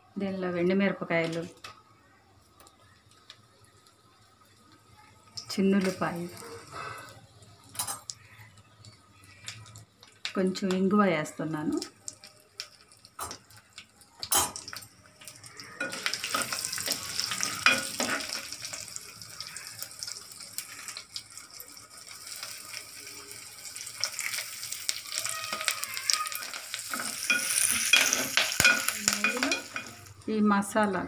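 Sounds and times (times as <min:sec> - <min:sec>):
ghee sizzling in a clay pot: 0:00.0 - 0:31.0
steel spoon scraping clay pot: 0:17.4 - 0:18.4, 0:26.9 - 0:30.1.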